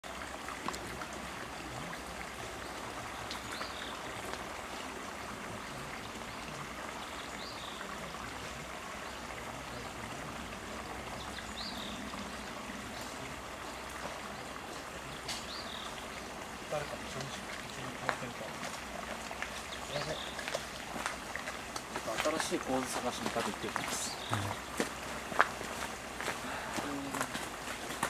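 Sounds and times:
stream water flowing: 0.0 - 28.0.

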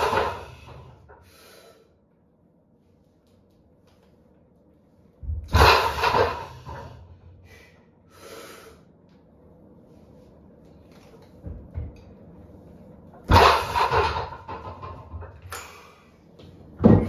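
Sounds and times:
barbell thudding on floor: 5.2 - 7.1, 13.3 - 15.3, 16.8 - 17.0.

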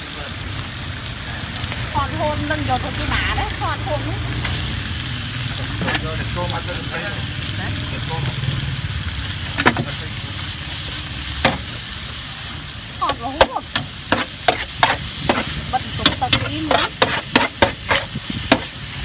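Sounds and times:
noodles sizzling on metal pan: 0.0 - 19.0
metal spatula scraping pan: 13.4 - 18.7.

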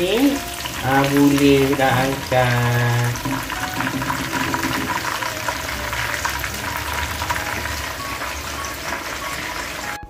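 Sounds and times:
chicken deep-frying in oil: 0.0 - 10.0.

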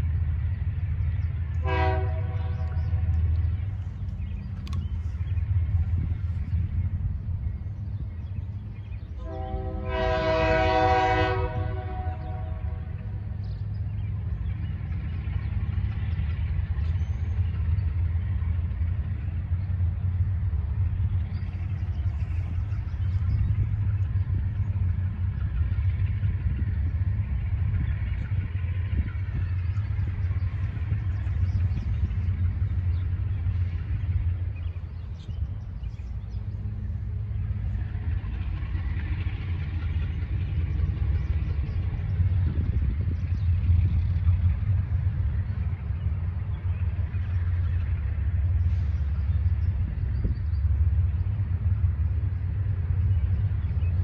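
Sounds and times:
steady low rumble: 0.0 - 54.0
locomotive air horn blast: 1.6 - 3.2, 9.2 - 13.0.

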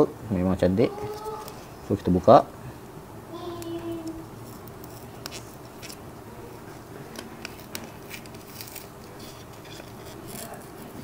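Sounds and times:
paper rustling: 6.6 - 11.0.

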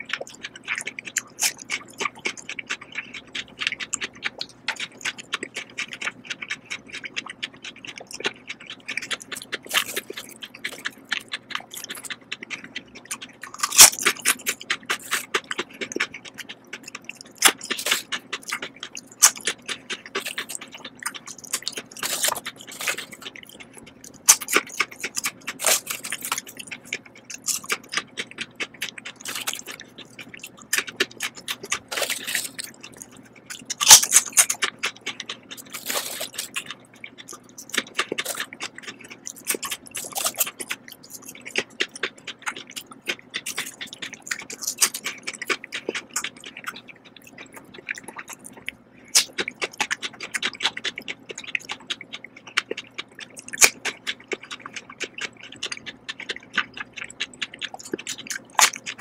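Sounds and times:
potato chips crunching: 0.1 - 59.0.

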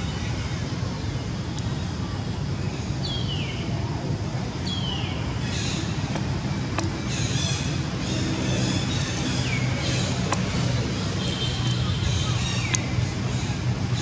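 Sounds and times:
low engine-like hum: 0.0 - 14.0.

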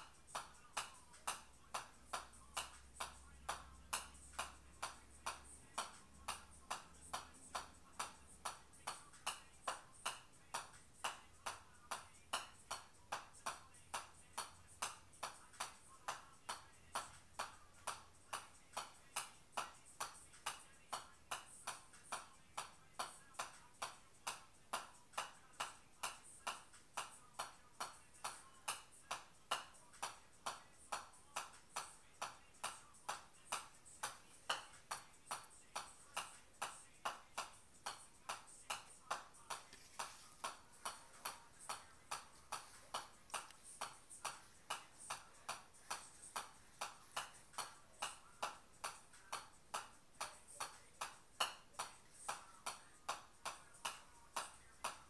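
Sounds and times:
golf ball bouncing on metal club: 27.4 - 52.4.

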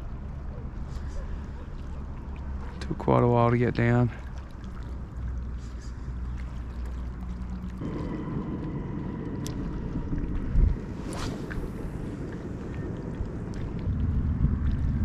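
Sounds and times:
wind buffeting microphone: 7.8 - 15.0.

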